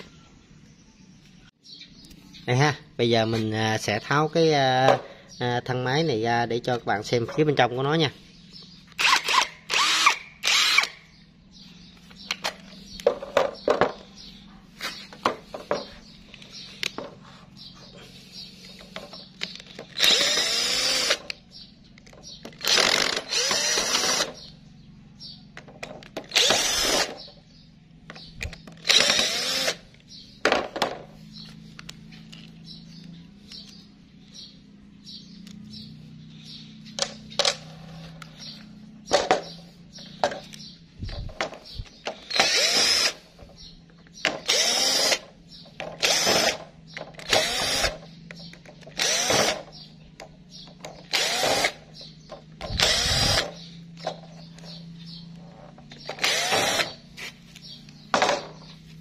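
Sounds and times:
cordless drill motor whine: 8.9 - 11.1, 19.6 - 21.4, 22.6 - 24.4, 26.3 - 27.2, 28.8 - 29.9, 42.2 - 43.4, 44.4 - 45.3, 46.0 - 46.6, 47.2 - 48.1, 48.9 - 49.8, 51.1 - 51.9, 52.6 - 54.0, 56.0 - 57.1.

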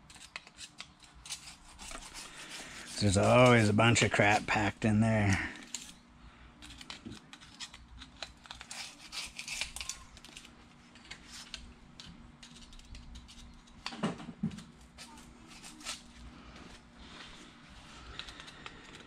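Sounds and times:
knife blade scraping metal groove: 0.1 - 4.4, 6.7 - 10.5.

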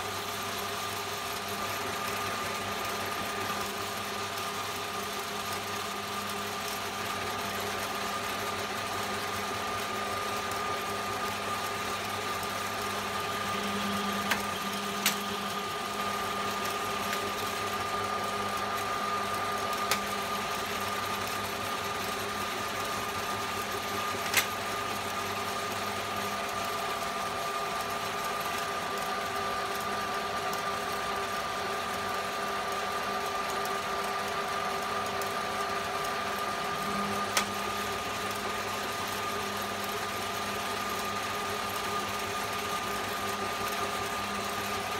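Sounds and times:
metal lathe whining: 0.4 - 33.8, 34.9 - 44.9.

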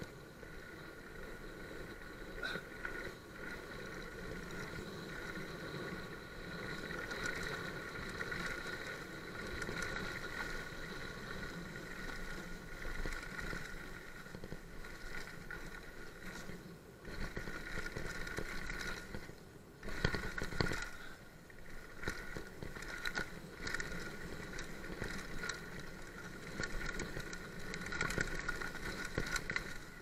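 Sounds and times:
bike tyres on dirt trail: 0.0 - 30.0
small clicks and knocks: 12.0 - 29.9.

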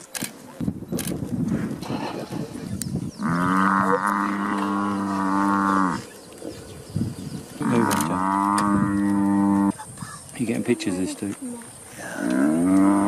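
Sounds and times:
buffalo bellowing: 3.2 - 6.1, 7.6 - 9.8, 12.1 - 13.0.

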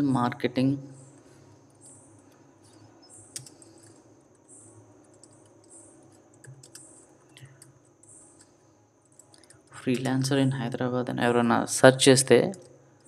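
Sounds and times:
low steady background hum: 0.0 - 13.0
typing on a keyboard: 1.2 - 7.8, 8.4 - 10.1.

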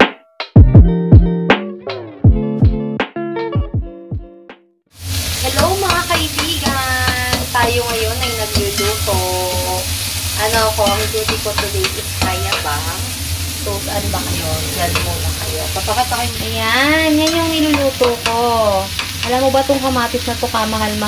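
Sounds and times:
food sizzling in a pan: 4.9 - 21.0
low hum: 8.3 - 17.8.

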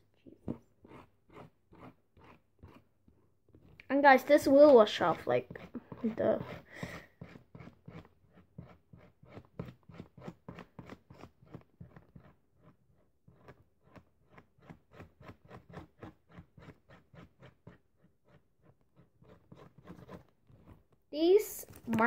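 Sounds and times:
marker tip rubbing on hair: 0.4 - 2.8, 3.6 - 12.7.

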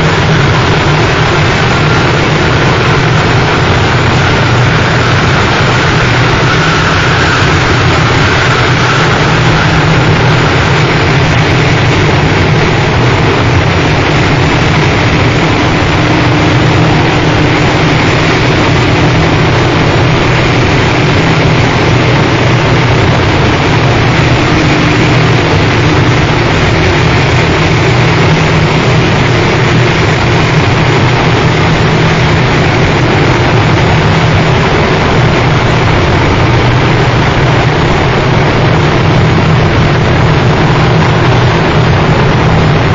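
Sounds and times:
harsh distorted noise music: 0.0 - 42.9
steady low hum: 0.0 - 42.9.

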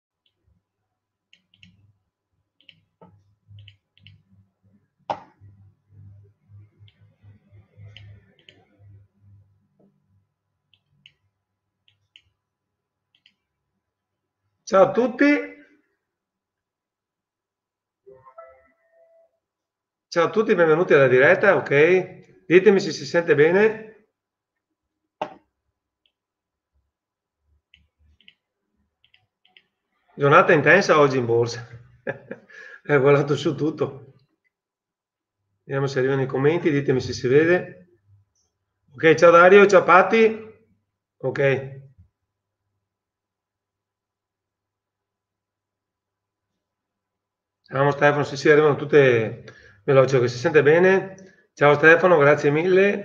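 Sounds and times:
computer clicks: 2.6 - 4.3.

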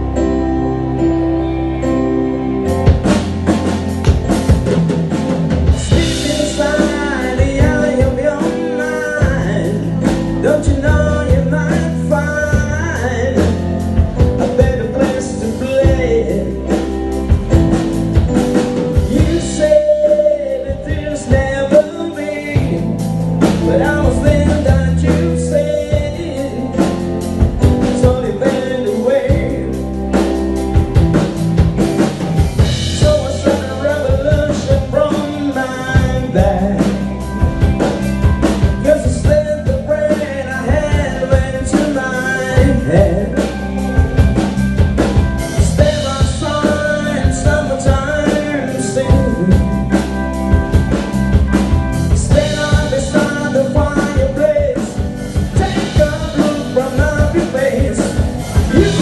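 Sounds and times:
bass guitar: 0.0 - 59.0
drums: 0.0 - 59.0
electric guitar: 0.0 - 59.0
keyboard: 0.0 - 59.0
male singer: 5.7 - 17.6, 19.0 - 30.3, 32.8 - 37.8, 38.5 - 44.2, 45.4 - 50.0, 52.1 - 59.0.

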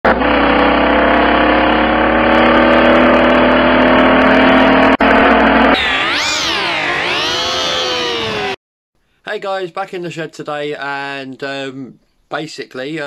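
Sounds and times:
car engine drone from cabin: 0.1 - 8.6.

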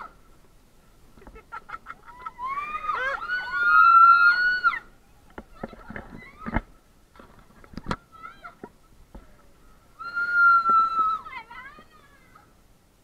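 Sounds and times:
people screaming: 2.0 - 4.9, 10.0 - 11.5.

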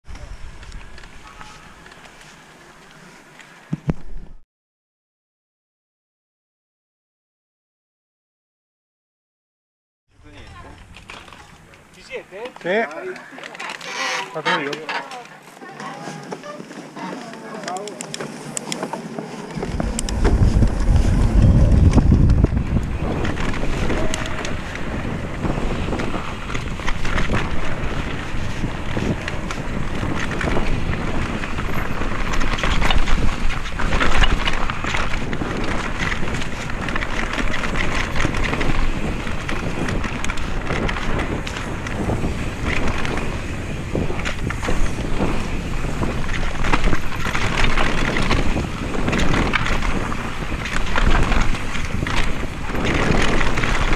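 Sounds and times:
bike rattling over bumps: 10.2 - 53.9
tyres on dirt and stones: 10.2 - 53.9
wind buffeting microphone: 18.1 - 53.9.

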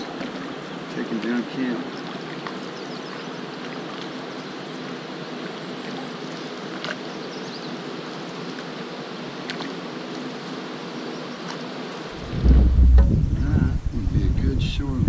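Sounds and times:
moving water: 0.0 - 14.2
paddle strokes: 4.8 - 7.1.

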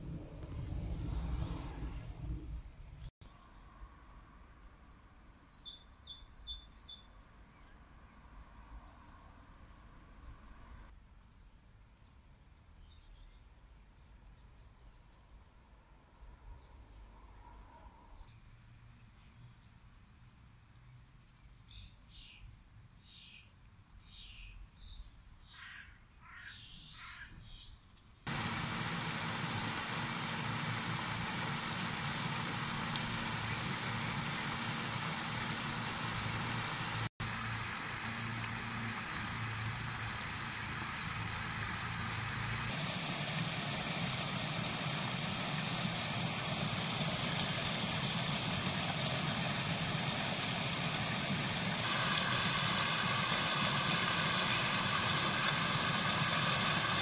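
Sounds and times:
low hum: 0.0 - 3.1
faint bird chirps: 5.3 - 7.8, 21.7 - 27.8
fountain water splashing: 28.3 - 57.0.

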